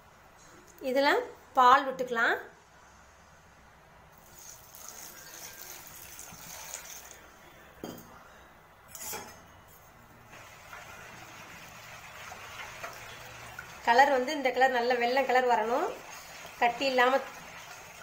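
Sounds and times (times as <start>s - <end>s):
milk pouring into a bowl: 4.2s - 7.3s, 10.4s - 13.9s.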